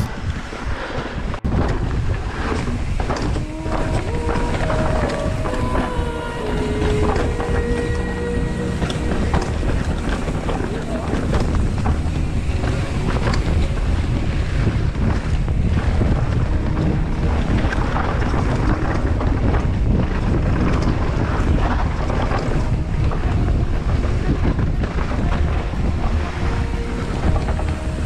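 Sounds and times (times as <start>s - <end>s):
wind buffeting microphone: 0.0s - 28.0s
low rumble: 1.2s - 28.0s
bike rattling and clicking: 1.4s - 28.0s.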